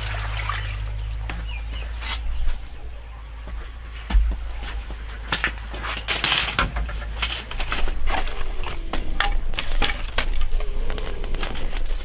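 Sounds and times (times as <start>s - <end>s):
wood fire crackling and popping: 5.4s - 12.0s.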